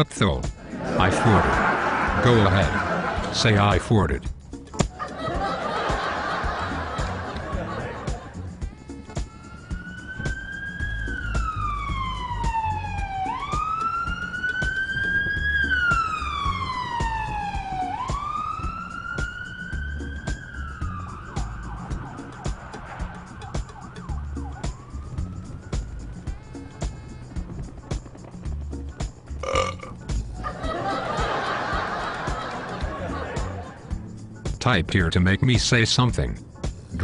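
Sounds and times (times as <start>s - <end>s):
emergency vehicle siren wailing: 8.6s - 27.1s.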